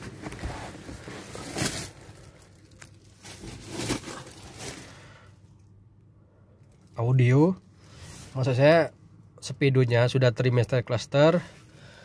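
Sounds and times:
rustling and handling noise: 0:00.0 - 0:05.7.

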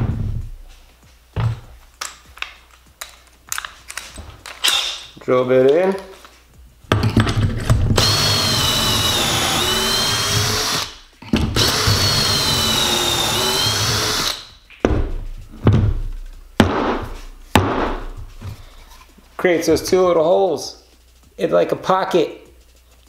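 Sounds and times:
cordless drill whining: 0:08.0 - 0:11.0, 0:11.6 - 0:14.5.

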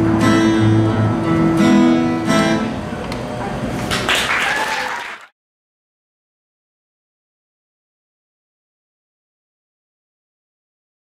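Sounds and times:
acoustic guitar strummed chords: 0:00.0 - 0:03.0
applause: 0:03.9 - 0:05.4.

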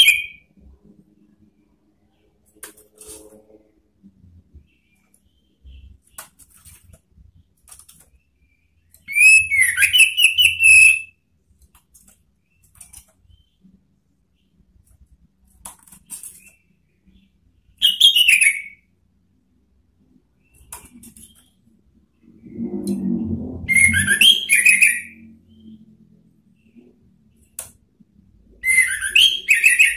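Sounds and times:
thrush singing whistles: 0:09.0 - 0:11.2, 0:23.7 - 0:25.2, 0:28.6 - 0:29.9.

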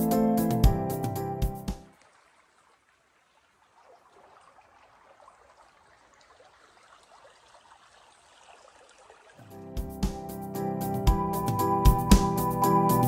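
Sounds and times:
faint stream trickling: 0:01.8 - 0:10.5.

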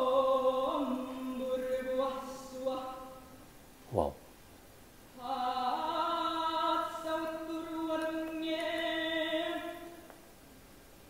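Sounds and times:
choir singing a cappella: 0:00.0 - 0:03.3, 0:05.2 - 0:10.0.

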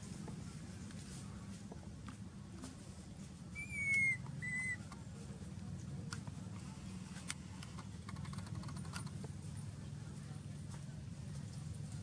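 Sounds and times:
low background rumble: 0:00.0 - 0:12.0
baby monkey coo calls: 0:03.6 - 0:04.8.

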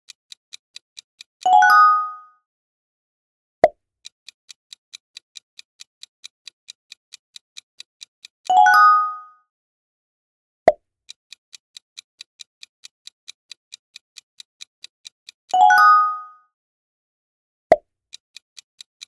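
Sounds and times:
countdown timer ticking: 0:12.0 - 0:16.4.

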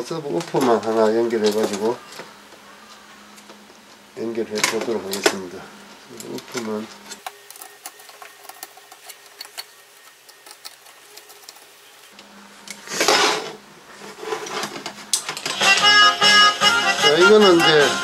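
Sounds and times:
screwdriver ticking and scraping: 0:07.2 - 0:11.8
board and wires scraping on table: 0:12.8 - 0:15.1.

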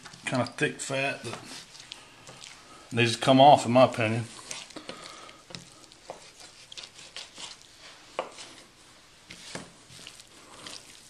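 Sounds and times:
knife slicing through fat: 0:06.0 - 0:08.7.

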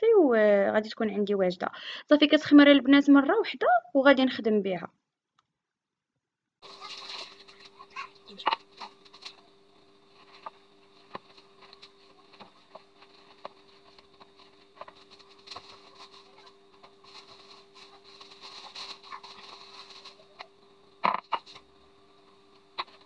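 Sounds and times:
faint steady hum: 0:06.6 - 0:23.0.

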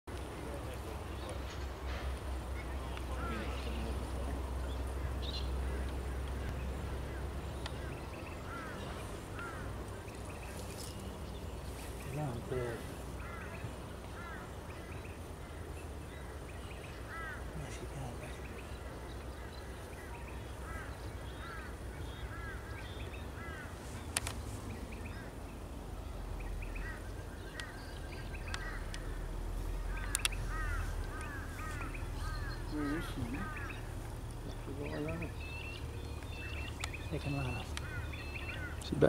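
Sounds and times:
bird chirping: 0:00.1 - 0:39.0
sharp clicks: 0:24.1 - 0:24.4, 0:30.0 - 0:30.4.

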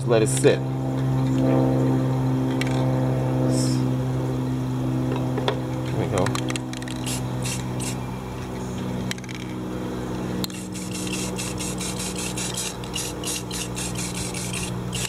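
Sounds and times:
steady low hum: 0:00.0 - 0:15.0
spray paint can hissing: 0:06.9 - 0:08.0, 0:10.4 - 0:15.0.

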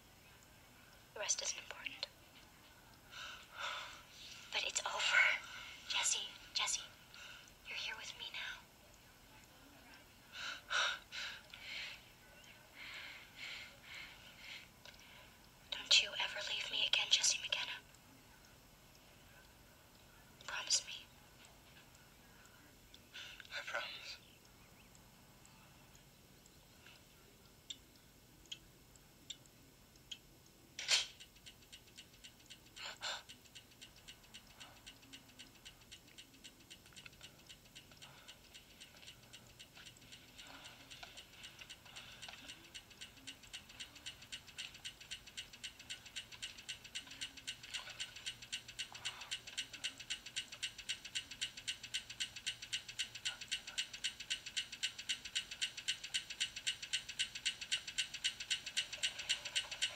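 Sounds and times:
clock ticking fast: 0:24.8 - 0:59.9
sharp clicks: 0:29.3 - 0:59.9.

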